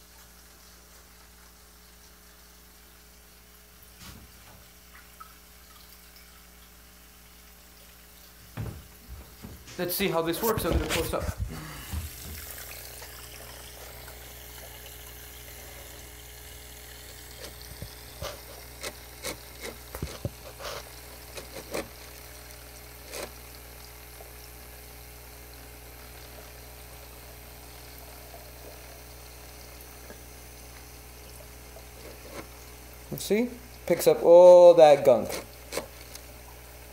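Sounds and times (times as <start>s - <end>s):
small motor humming underwater: 10.8s - 36.9s.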